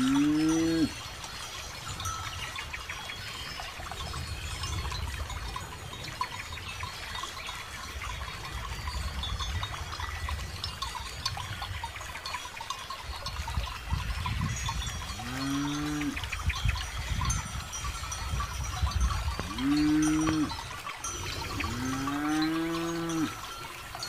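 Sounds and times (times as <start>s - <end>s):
cow mooing: 0.0s - 1.0s, 15.2s - 16.3s, 19.4s - 20.6s, 21.4s - 23.4s
cattle bells tinkling: 0.0s - 24.0s
wind rumble on microphone: 0.0s - 24.0s.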